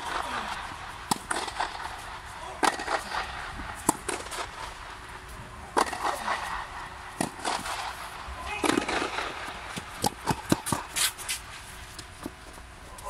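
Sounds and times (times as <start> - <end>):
tennis ball bouncing: 0.0 - 2.0, 2.6 - 3.2, 3.8 - 4.8, 5.7 - 8.0, 8.6 - 11.4
tennis racket hitting ball: 0.0 - 4.8, 5.7 - 11.4.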